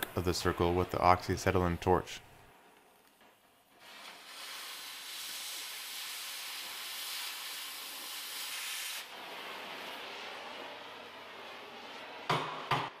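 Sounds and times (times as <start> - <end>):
cutting torch hissing: 3.7 - 13.0.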